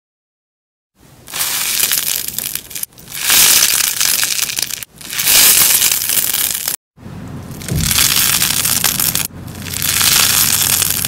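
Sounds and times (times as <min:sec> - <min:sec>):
crunchy slime crackling: 0:01.3 - 0:06.8, 0:07.6 - 0:11.0.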